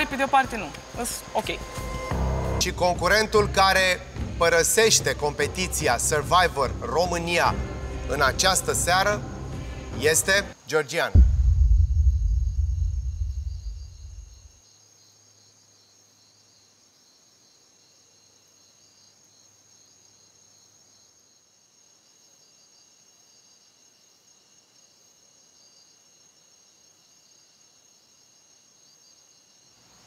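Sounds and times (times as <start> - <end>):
crickets chirping: 0.0 - 30.0
low boom: 11.2 - 14.5.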